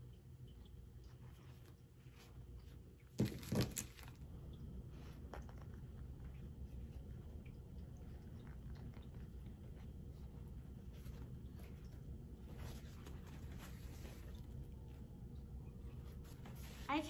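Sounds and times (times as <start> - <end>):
low steady hum: 0.0 - 17.0
paper towel crinkling: 1.1 - 4.2, 8.0 - 17.0.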